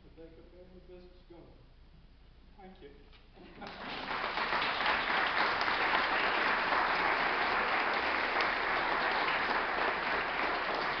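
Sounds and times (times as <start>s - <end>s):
audience clapping: 3.6s - 11.0s.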